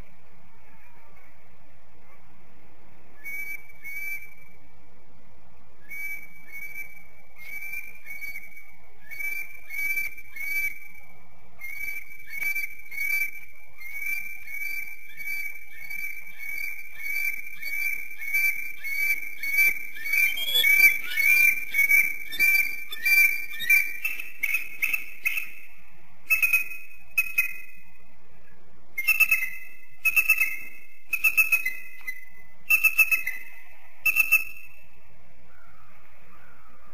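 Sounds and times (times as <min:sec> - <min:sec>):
eagle chattering: 0:20.0 - 0:24.2.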